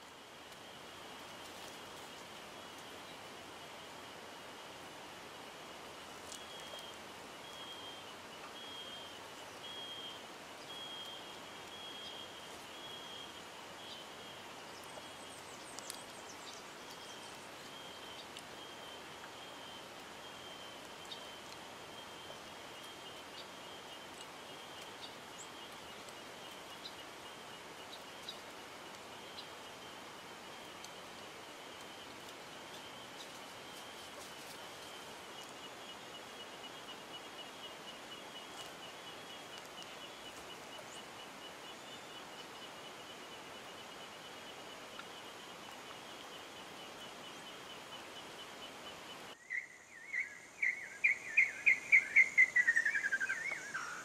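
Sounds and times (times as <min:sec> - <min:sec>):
steady hiss: 0:00.0 - 0:54.0
faint ticks: 0:14.7 - 0:20.0.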